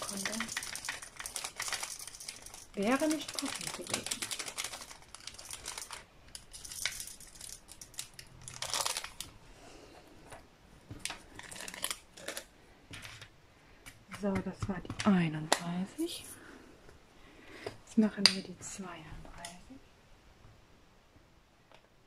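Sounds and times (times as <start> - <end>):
plastic bag crinkling: 0.0 - 9.4, 11.0 - 12.6.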